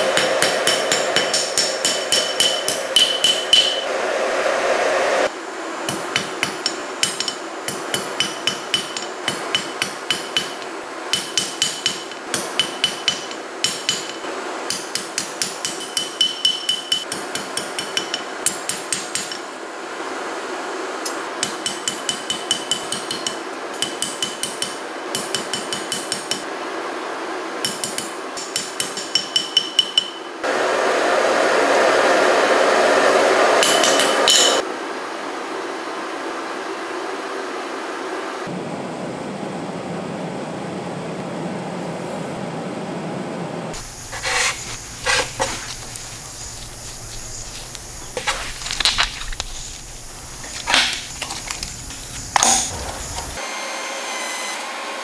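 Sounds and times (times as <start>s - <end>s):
hammer striking metal on anvil: 0.0s - 3.9s, 5.9s - 19.5s, 21.4s - 26.5s, 27.6s - 30.4s, 33.6s - 34.6s.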